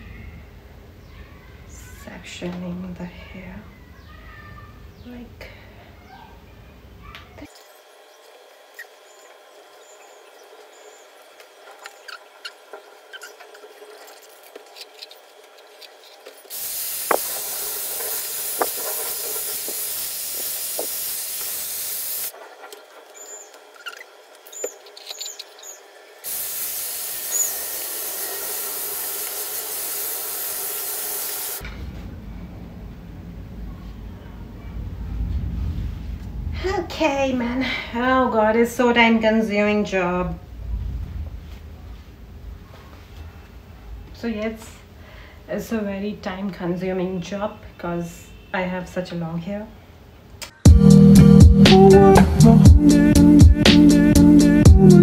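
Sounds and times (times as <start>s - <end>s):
hair styler blowing air: 15.9s - 23.8s, 24.4s - 31.6s.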